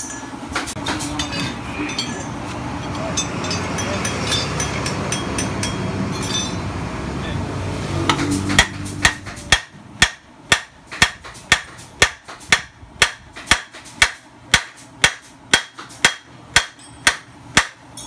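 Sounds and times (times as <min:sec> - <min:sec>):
hammer striking steel bar: 0:03.2 - 0:06.7, 0:08.1 - 0:18.0.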